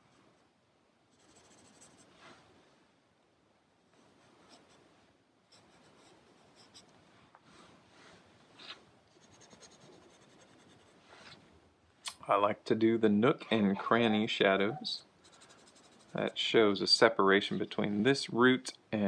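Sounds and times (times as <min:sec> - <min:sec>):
pencil scratching on paper: 0:01.1 - 0:02.2, 0:03.9 - 0:04.8, 0:05.5 - 0:06.9, 0:09.1 - 0:11.2, 0:15.0 - 0:16.4.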